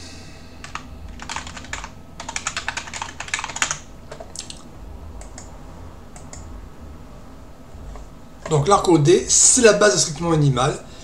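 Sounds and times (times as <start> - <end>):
computer keyboard typing: 0.6 - 4.6, 5.2 - 5.5.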